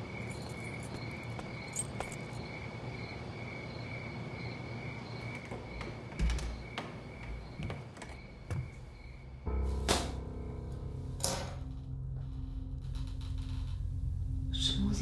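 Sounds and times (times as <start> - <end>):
crickets trilling: 0.0 - 10.9.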